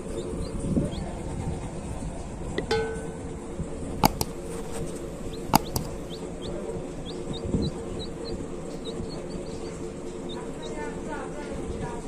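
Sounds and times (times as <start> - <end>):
baby chick peeping: 0.0 - 2.6, 3.8 - 12.0
sharp clicks: 4.0 - 6.2.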